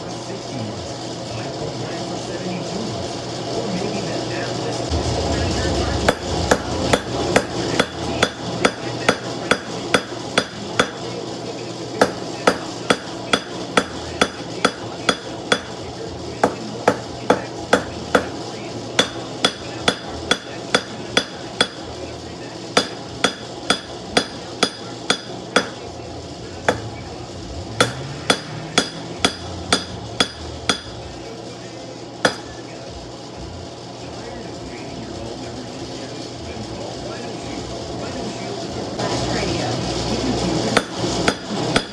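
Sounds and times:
low hum: 3.0s - 9.0s
hammer striking steel on anvil: 6.0s - 11.2s, 12.0s - 15.8s, 16.4s - 21.9s, 22.7s - 25.8s, 26.6s - 27.0s, 27.8s - 31.0s, 32.2s - 32.6s, 40.8s - 41.9s.

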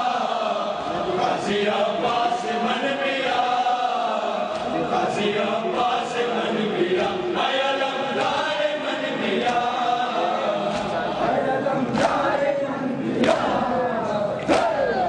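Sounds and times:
men chanting together: 0.0s - 15.0s
hands slapping chests: 4.5s - 4.8s, 9.4s - 9.7s, 10.7s - 11.0s, 11.9s - 12.3s, 13.2s - 13.5s, 14.4s - 14.9s.

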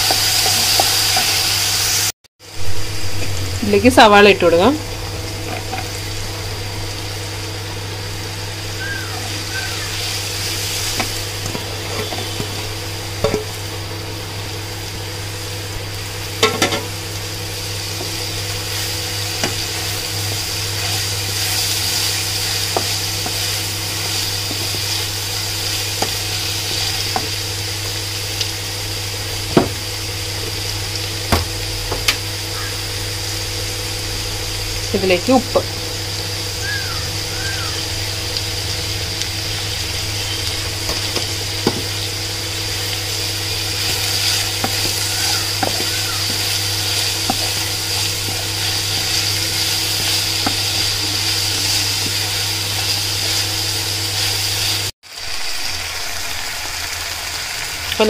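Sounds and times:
onions sizzling in a frying pan: 0.0s - 58.0s.

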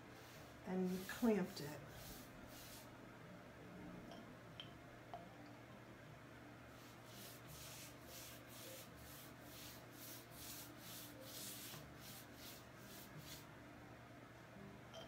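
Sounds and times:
paintbrush swishing on wood: 0.2s - 2.9s, 6.8s - 13.5s.

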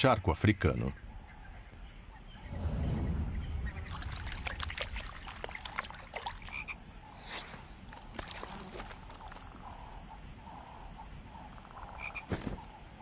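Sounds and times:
bullfrog croak: 6.0s - 7.4s, 8.2s - 12.4s.

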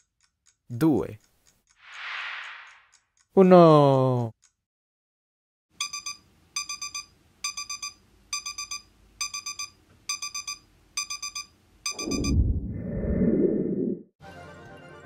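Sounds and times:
kitchen timer beeping: 5.8s - 12.4s
loud low noisy sound: 12.0s - 13.8s.

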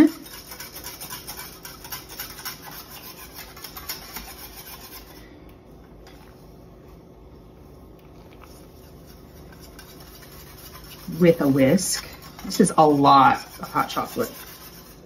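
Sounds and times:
wire whisk scraping saucepan: 0.0s - 5.2s, 8.4s - 15.0s.

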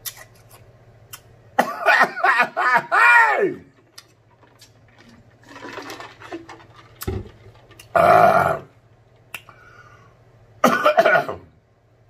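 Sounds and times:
man burping loudly: 7.9s - 8.7s.

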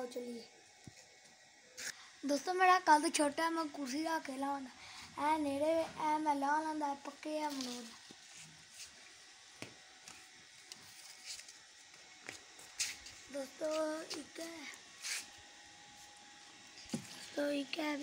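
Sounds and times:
high-pitched voice syllables: 13.3s - 14.8s.

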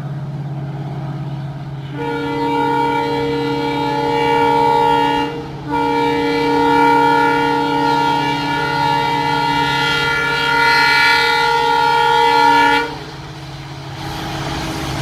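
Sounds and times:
diesel engine low drone: 0.0s - 15.0s
locomotive air horn blasts: 1.8s - 13.1s.

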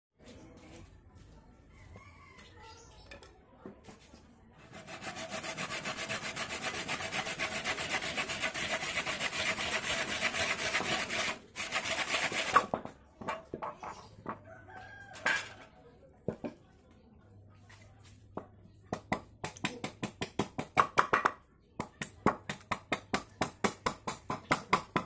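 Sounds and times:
hacksaw cutting wood: 4.7s - 12.8s
knocks and scrapes of wood: 9.2s - 14.4s.

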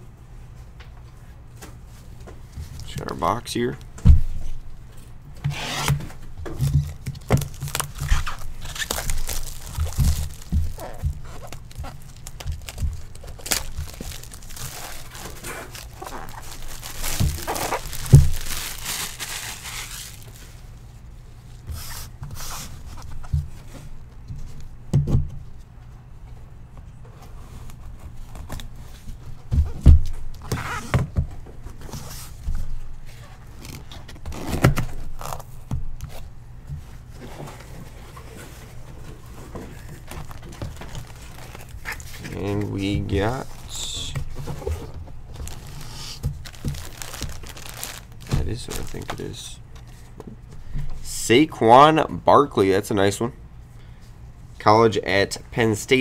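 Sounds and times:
cardboard knocks and thumps: 5.4s - 18.8s, 44.2s - 49.2s
plastic wrap crinkling and tearing: 6.8s - 20.6s, 33.5s - 35.5s, 39.5s - 44.1s, 45.3s - 49.6s.

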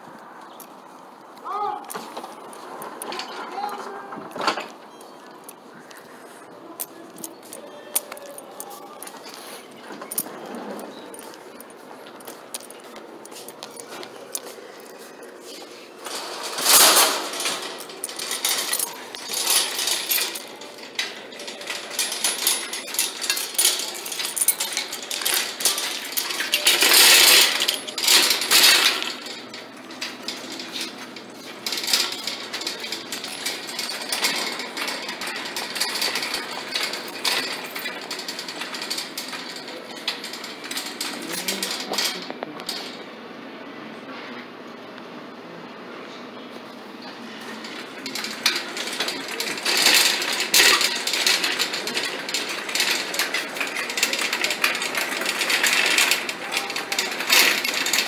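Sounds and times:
wire shopping cart rattling: 0.4s - 43.1s, 47.0s - 58.0s
loud metal clanks: 16.0s - 43.0s, 47.6s - 58.0s.

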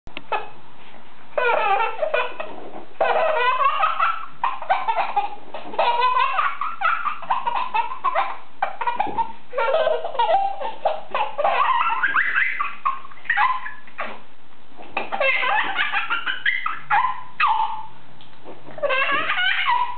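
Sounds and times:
infant laughing: 1.4s - 14.2s, 15.0s - 17.9s, 18.7s - 19.9s.

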